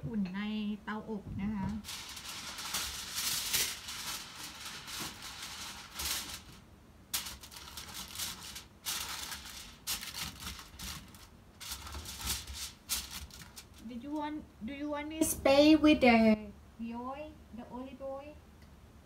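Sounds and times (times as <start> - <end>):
aluminium foil crinkling: 1.8 - 14.3.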